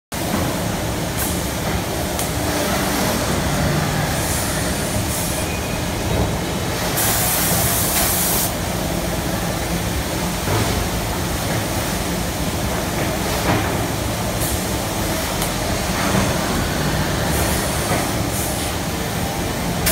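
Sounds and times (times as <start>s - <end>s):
pneumatic air hisses: 6.9s - 8.5s.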